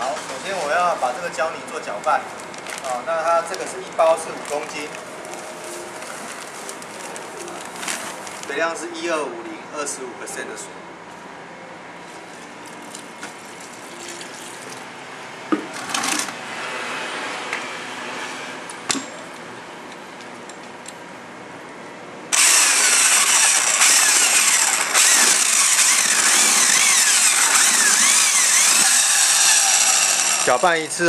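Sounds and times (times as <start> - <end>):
power drill mixing mortar: 22.3 - 30.6.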